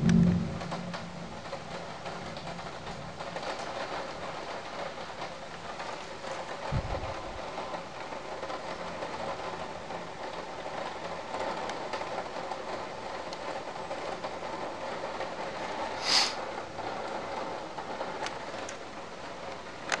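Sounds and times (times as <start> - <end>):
steady rain hiss: 0.0 - 20.0
burst of noise: 16.0 - 16.4.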